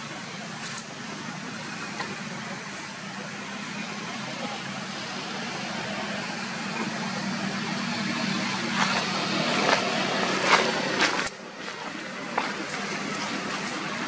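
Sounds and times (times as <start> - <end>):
dry leaves rustling: 8.6 - 14.0.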